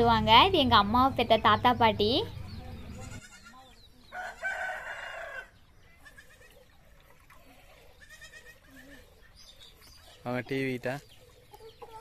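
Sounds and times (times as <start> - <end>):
quiet farmyard background: 0.0 - 12.0
goat bleating: 2.9 - 3.7, 5.9 - 6.6, 7.9 - 9.2.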